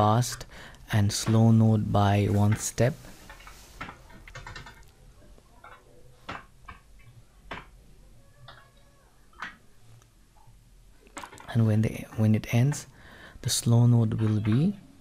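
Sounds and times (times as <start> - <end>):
typing on keyboard: 4.3 - 4.8.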